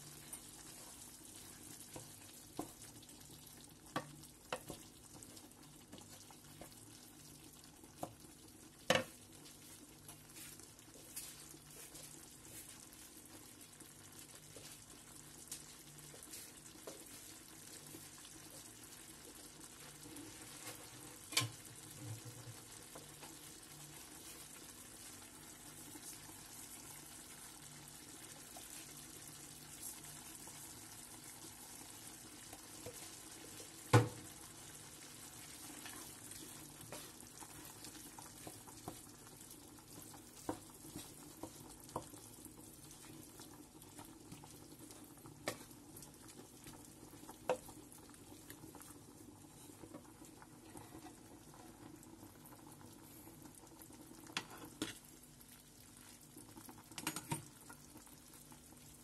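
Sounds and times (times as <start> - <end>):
meat sizzling in a frying pan: 0.0 - 59.0
wooden spoon knocking and scraping pan: 3.9 - 4.9, 8.8 - 9.2, 33.8 - 34.3, 40.4 - 42.2.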